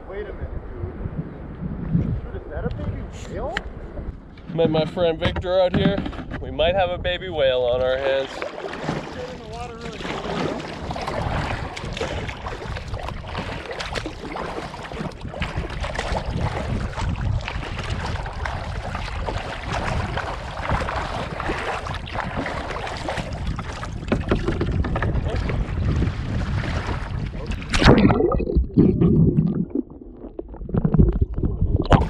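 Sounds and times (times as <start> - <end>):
wind buffeting microphone: 0.0 - 32.0
water rushing along hull: 7.4 - 32.0
paddle strokes splashing: 8.1 - 29.0.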